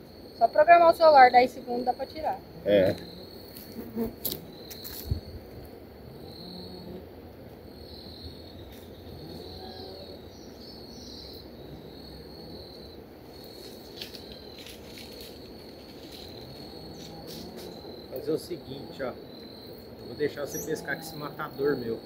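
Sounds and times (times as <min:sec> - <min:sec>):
insects chirping: 0:00.0 - 0:22.0
low outdoor hum: 0:00.0 - 0:22.0.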